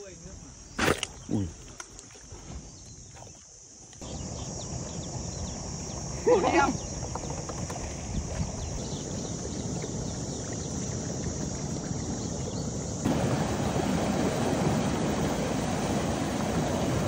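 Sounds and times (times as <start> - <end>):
wind on microphone: 6.8 - 17.0
water rushing through sluice: 13.0 - 17.0.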